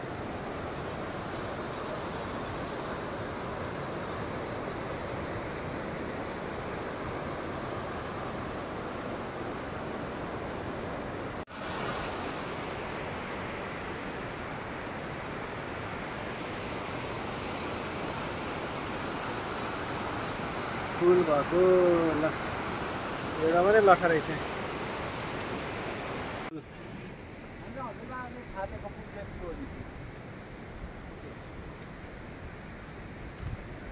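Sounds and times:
river water rushing: 0.0s - 33.9s.

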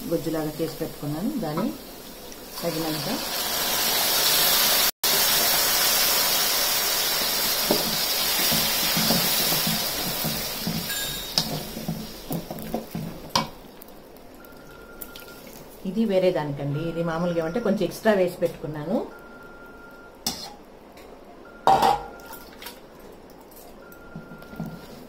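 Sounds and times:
food sizzling in hot oil: 0.0s - 15.8s.

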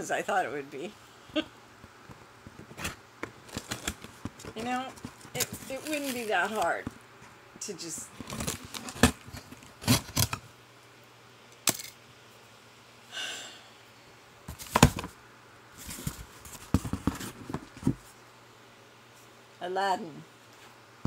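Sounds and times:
cardboard rustle: 2.5s - 6.9s, 8.1s - 10.4s, 15.8s - 18.1s
cardboard box knocks and scrapes: 15.9s - 18.1s.

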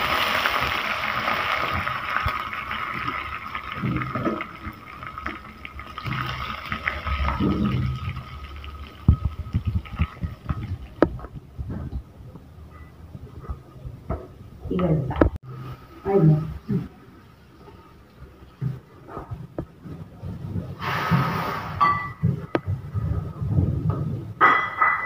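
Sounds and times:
spices sizzling in hot oil: 0.0s - 11.2s.

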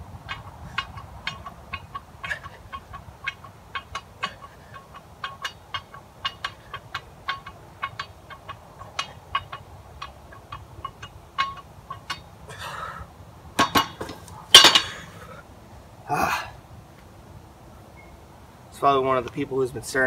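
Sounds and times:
barbell clicking and clinking: 0.2s - 12.6s, 13.6s - 15.0s
barbell clanking onto rack: 13.6s - 15.0s.

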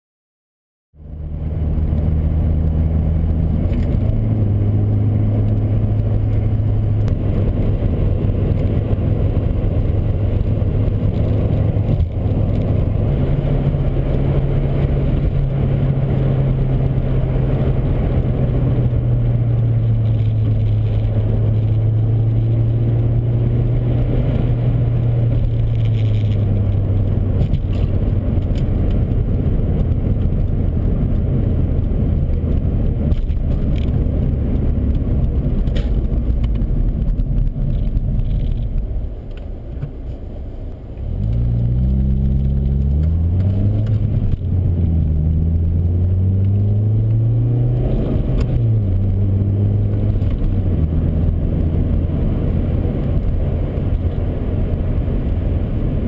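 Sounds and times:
car engine drone: 0.9s - 56.0s
road noise: 0.9s - 56.0s.

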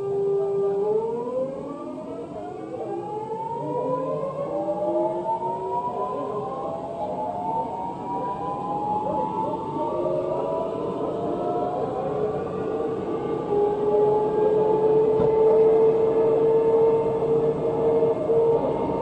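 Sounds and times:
subway traction motors whining: 0.0s - 19.0s
train car running noise: 5.9s - 19.0s.

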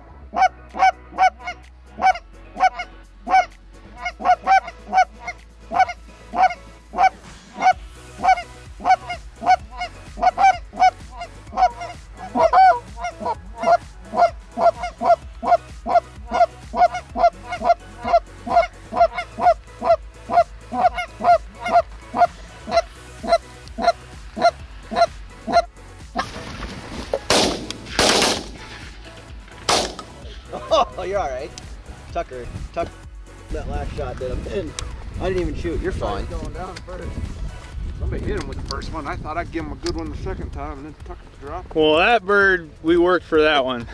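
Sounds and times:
goose honking: 0.3s - 26.3s
shotgun blasts: 27.3s - 28.8s, 29.7s - 30.2s.

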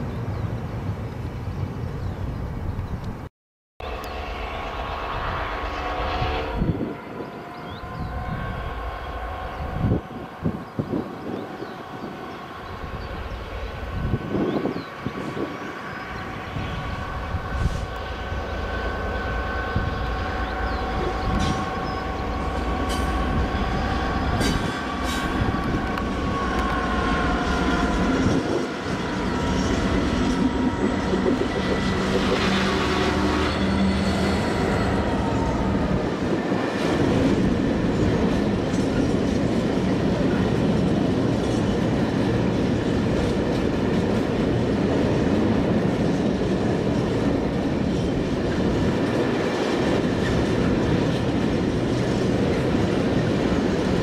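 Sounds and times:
diesel locomotive passing: 0.0s - 54.0s
high engine whine: 3.8s - 38.9s
wagons rumbling over rails: 3.8s - 54.0s.

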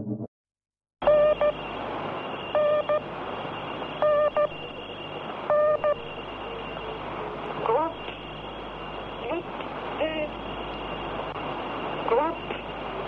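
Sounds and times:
short electronic beeps: 1.0s - 1.6s.

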